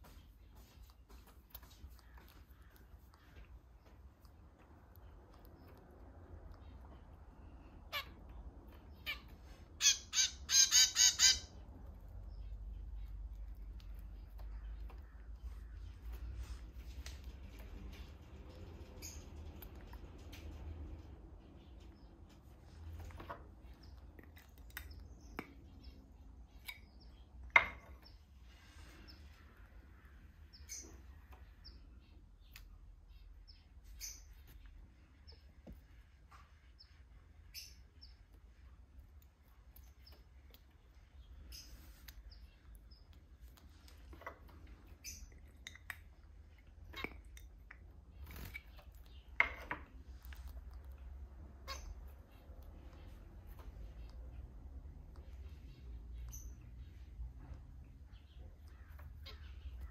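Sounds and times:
finch chick chirping: 6.6s - 13.0s.

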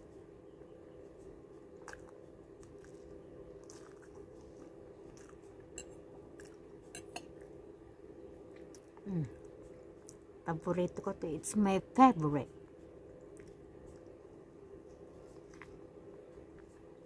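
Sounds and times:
steady low hum: 0.0s - 17.0s
person chewing: 1.8s - 7.5s, 13.2s - 17.0s
person humming mm: 9.0s - 9.4s.

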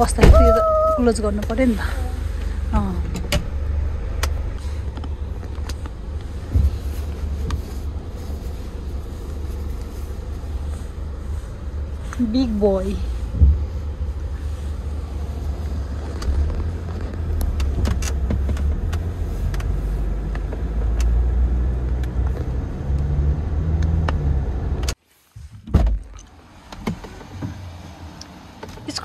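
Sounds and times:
car engine and tyre rumble: 0.0s - 29.0s
thump: 0.2s - 0.5s, 13.4s - 13.7s, 25.6s - 26.0s.

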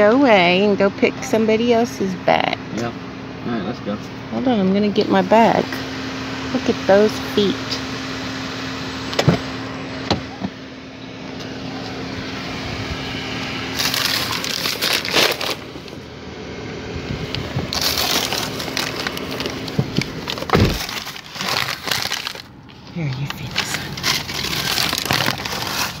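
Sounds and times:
car hum: 0.0s - 26.0s
feed bag crinkling: 13.7s - 16.0s, 17.7s - 26.0s.

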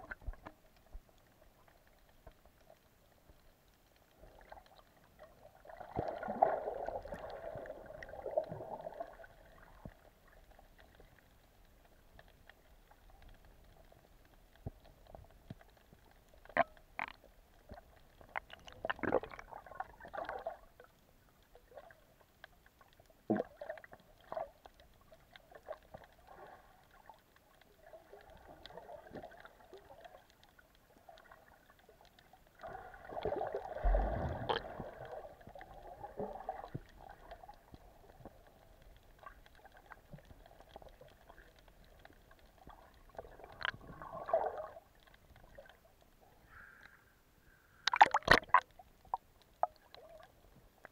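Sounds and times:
clicks underwater: 0.0s - 1.3s, 14.5s - 20.9s, 32.2s - 45.8s, 47.8s - 50.9s
rushing water: 32.6s - 38.3s, 47.8s - 50.3s.

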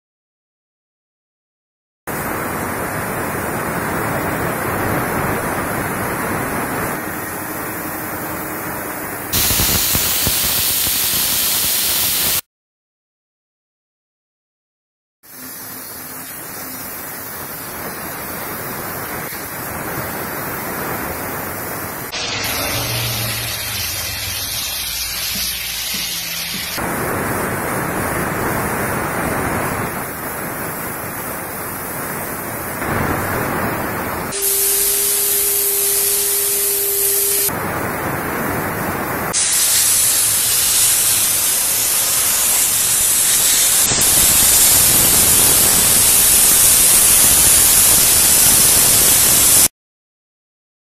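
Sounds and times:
steady hum: 2.2s - 10.1s, 32.5s - 46.9s
steam cleaner nozzle hissing: 9.3s - 12.4s, 22.1s - 26.9s, 34.3s - 37.5s, 39.4s - 49.7s.

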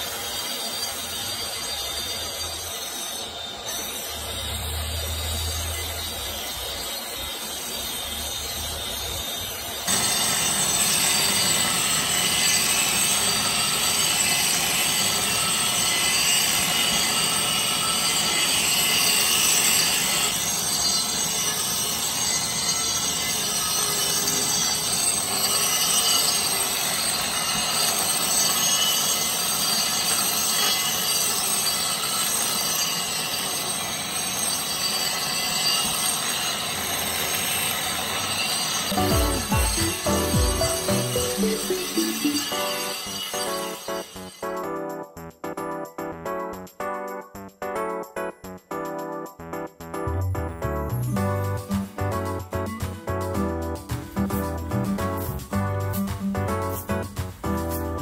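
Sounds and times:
concrete grinders grinding with whine: 0.0s - 44.4s.

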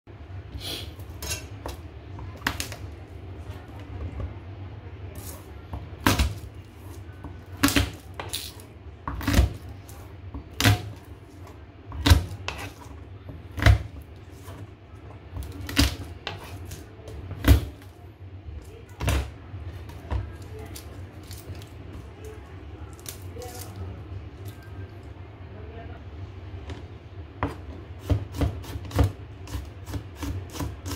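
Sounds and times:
low steady hum: 0.1s - 30.9s
knife chopping on cutting board: 27.4s - 30.9s.

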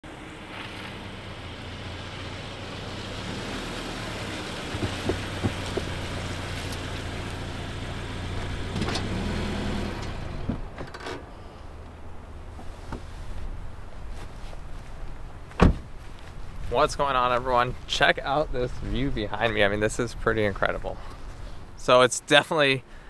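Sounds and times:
car engine running: 0.2s - 10.8s.

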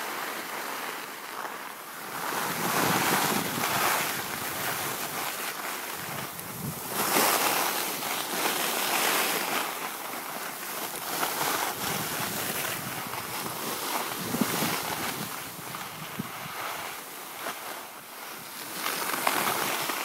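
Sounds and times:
skis scraping over snow: 0.0s - 20.0s
wind rushing over microphone: 2.0s - 8.4s, 10.9s - 17.4s.

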